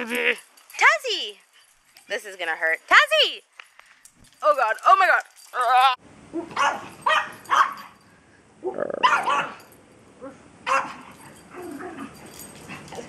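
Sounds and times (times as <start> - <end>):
dogs barking: 6.4 - 7.9, 8.7 - 9.7, 10.6 - 12.1
dogs making low sounds: 8.6 - 9.6.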